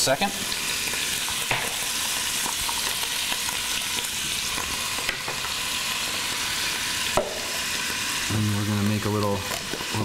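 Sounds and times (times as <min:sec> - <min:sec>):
cheese sizzling in hot fat: 0:00.0 - 0:10.0.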